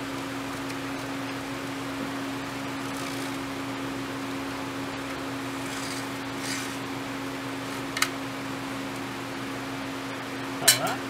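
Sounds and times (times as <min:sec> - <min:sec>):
mechanical hum: 0:00.0 - 0:11.0.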